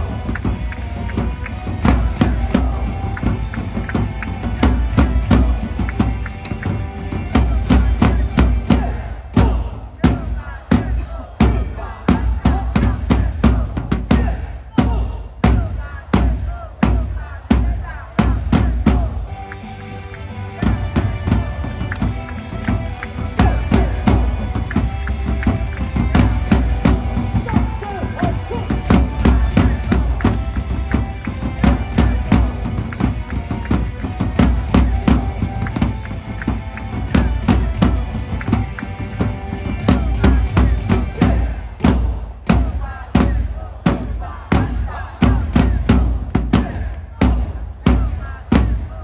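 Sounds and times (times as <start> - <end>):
cheer music with heavy bass beat: 0.0 - 49.0.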